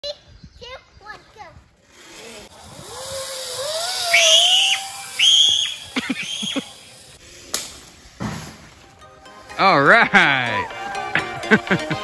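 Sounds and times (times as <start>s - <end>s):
zip line trolley whine: 1.8s - 7.5s.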